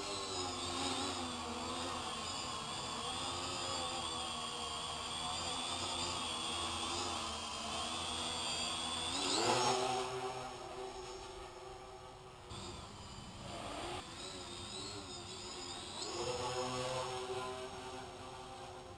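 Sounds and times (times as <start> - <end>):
quadcopter propellers whining: 0.0 - 18.9.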